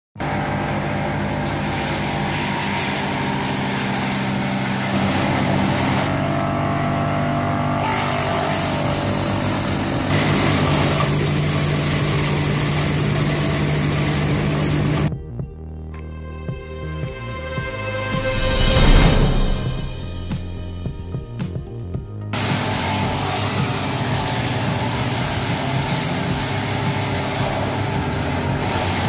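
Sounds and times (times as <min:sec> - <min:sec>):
diesel engine running: 0:00.2 - 0:15.1, 0:22.3 - 0:29.0.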